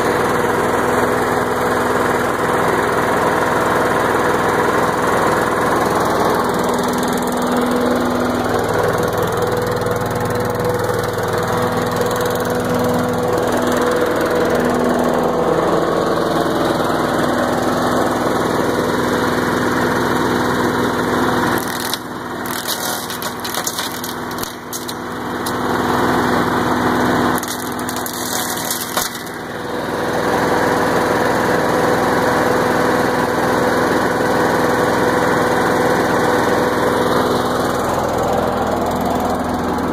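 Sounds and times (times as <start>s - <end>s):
chipper engine running: 0.0s - 39.9s
stick crackling in chipper: 21.4s - 25.7s, 27.3s - 29.6s.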